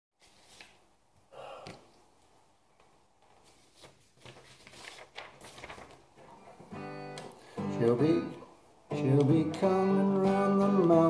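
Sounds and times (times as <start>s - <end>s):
person exhaling: 1.3s - 2.0s.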